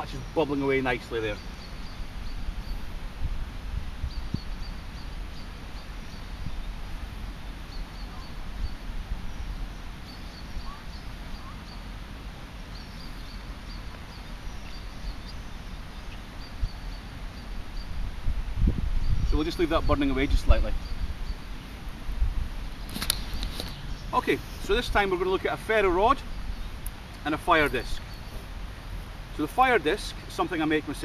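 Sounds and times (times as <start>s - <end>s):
low unsteady rumble: 1.0s - 30.3s
faint high chirps: 7.7s - 11.9s.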